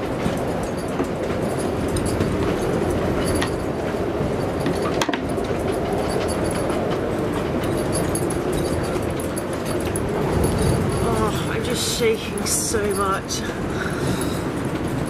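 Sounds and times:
sharp clicks and knocks: 0:00.0 - 0:11.0
storm wind rushing: 0:00.0 - 0:15.0.

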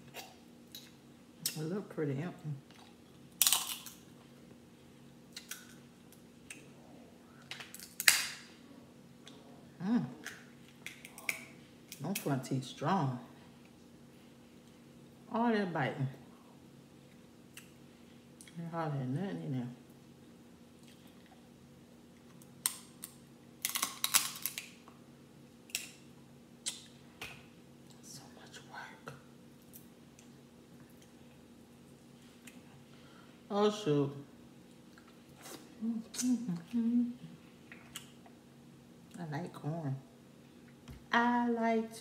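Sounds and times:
crab shell cracking: 0:03.4 - 0:04.0, 0:07.5 - 0:08.4, 0:22.4 - 0:24.8, 0:25.7 - 0:26.0.

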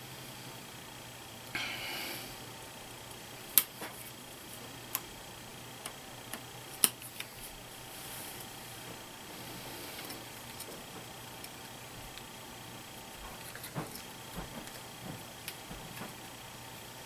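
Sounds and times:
cable ties rustling: 0:05.8 - 0:17.0.

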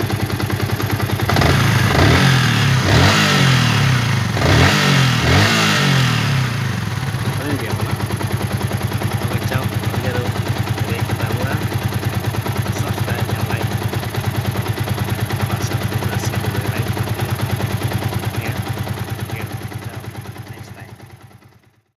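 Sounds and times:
motorcycle engine idling: 0:00.0 - 0:22.0.

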